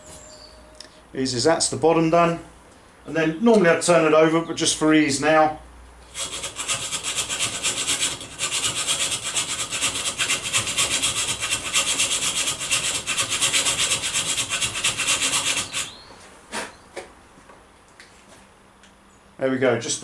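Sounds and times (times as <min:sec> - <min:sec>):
file rasping on metal: 0:06.1 - 0:16.0.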